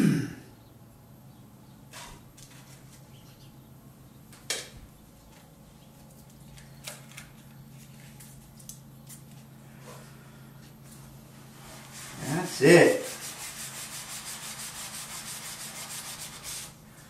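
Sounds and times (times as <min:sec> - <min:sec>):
steady low hum: 0:00.0 - 0:17.0
paper filter rustling: 0:01.9 - 0:03.2.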